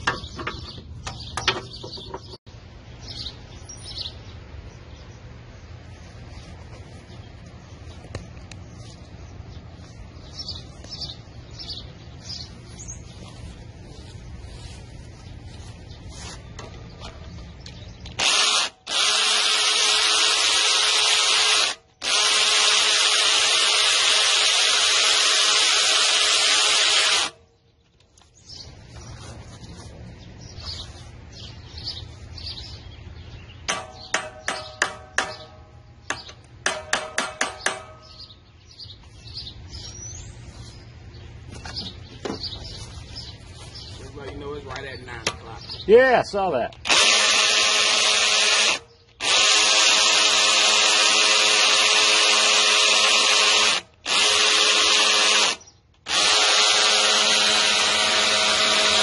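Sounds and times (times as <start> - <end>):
cordless drill spinning: 18.2 - 27.4, 46.8 - 59.0.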